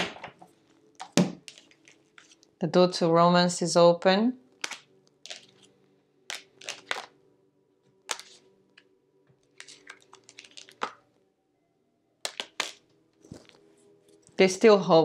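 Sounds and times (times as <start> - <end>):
cards slapping on table: 4.6 - 5.5, 8.1 - 8.4, 12.3 - 12.8.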